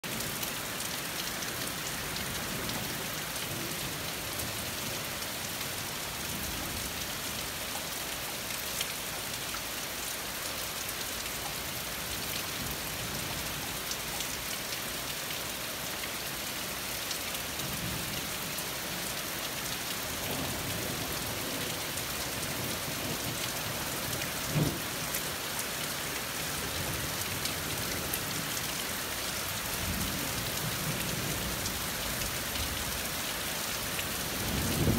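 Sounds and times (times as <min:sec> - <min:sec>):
heavy rain falling through trees: 0:00.0 - 0:34.9
distant thunder rumbling: 0:34.5 - 0:34.9.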